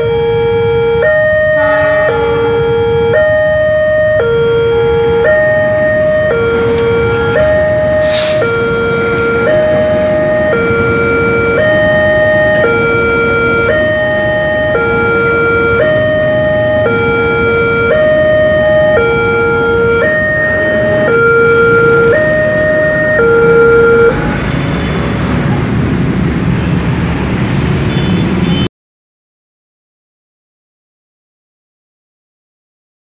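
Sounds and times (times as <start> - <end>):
level crossing two-tone alarm: 0.0 - 24.3
passing train rumble: 0.0 - 28.6
brief hiss: 8.0 - 8.5.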